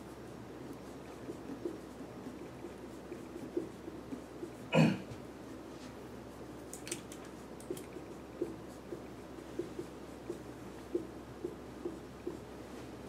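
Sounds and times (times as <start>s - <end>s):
marker pen writing on whiteboard: 0.0s - 12.8s
person clearing throat: 4.7s - 5.1s.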